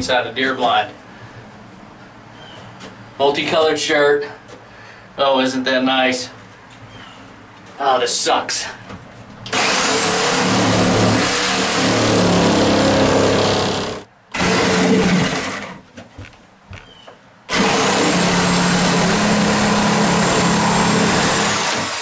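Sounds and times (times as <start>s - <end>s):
reciprocating saw cutting wood: 9.5s - 15.8s, 17.5s - 22.0s
small knocks: 15.9s - 17.2s.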